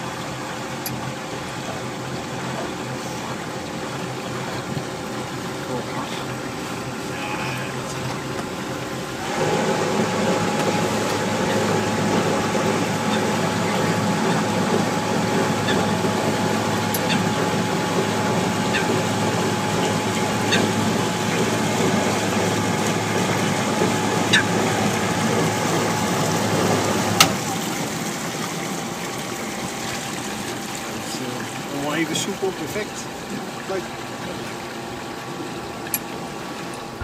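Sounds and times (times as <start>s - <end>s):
electric boat motor whine: 0.0s - 37.0s
water rushing along hull: 0.0s - 37.0s.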